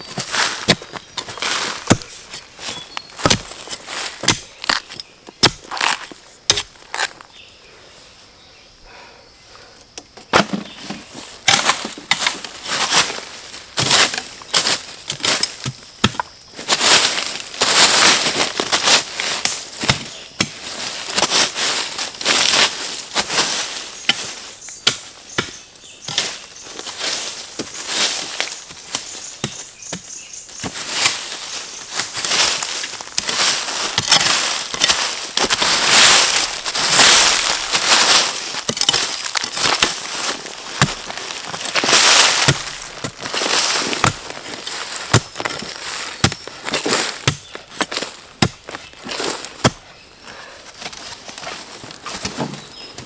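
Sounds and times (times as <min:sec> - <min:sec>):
dry plants rustling and snapping: 0:00.0 - 0:07.4, 0:09.9 - 0:50.0, 0:50.7 - 0:53.0
sharp knocks and cracks: 0:03.2 - 0:07.2, 0:33.1 - 0:44.4, 0:45.0 - 0:48.8.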